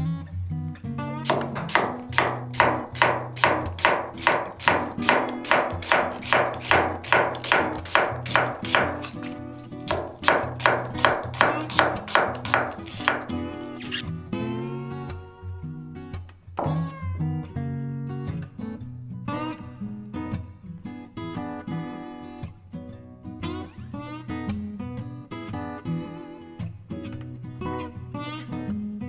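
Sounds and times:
acoustic guitar music: 0.0 - 29.0
knife slicing on wooden board: 1.2 - 14.0.

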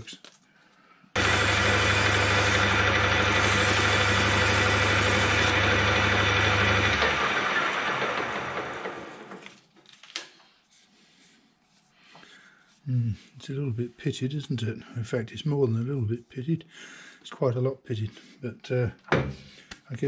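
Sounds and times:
metal lathe motor running: 1.2 - 9.3.

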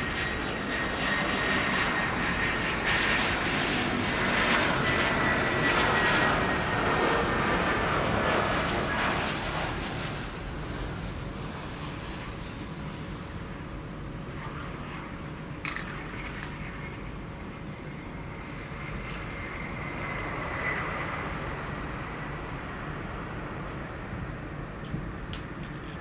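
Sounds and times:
jet engine rumble: 0.0 - 26.0.

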